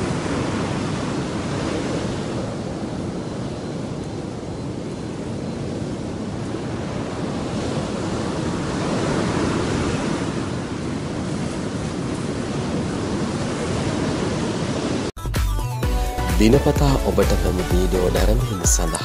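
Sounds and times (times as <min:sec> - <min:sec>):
ocean surf on beach: 0:00.0 - 0:15.2.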